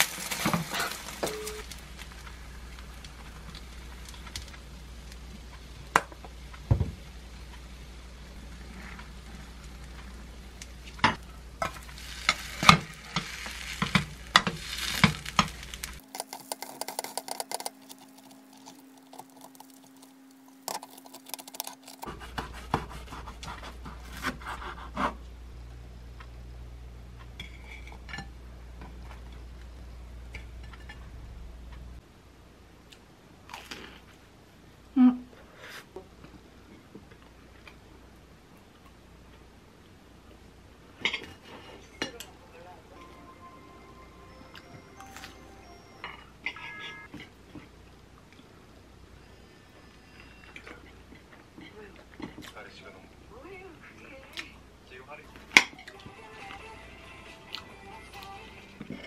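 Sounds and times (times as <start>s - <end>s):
bread sizzling in a pan: 0.0s - 20.7s
utensils clicking and knocking: 12.6s - 22.9s.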